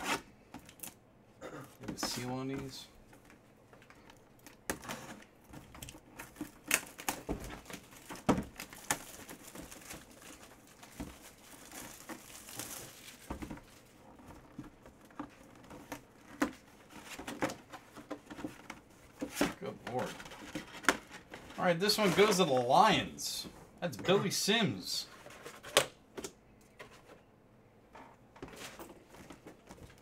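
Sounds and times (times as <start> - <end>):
plastic packaging crinkling and tearing: 4.4 - 16.2.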